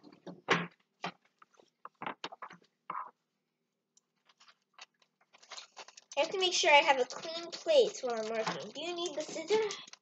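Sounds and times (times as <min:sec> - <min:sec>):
plastic packet taps and rustles: 0:04.1 - 0:10.0.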